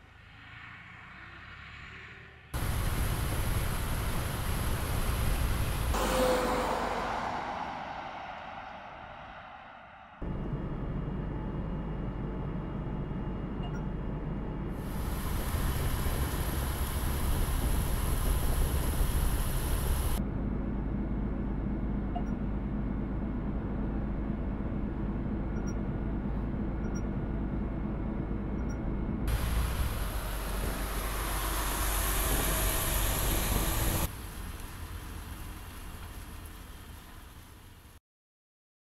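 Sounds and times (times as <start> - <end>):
truck rumble: 2.6 - 13.6, 14.4 - 38.0
truck driving past: 22.7 - 35.7.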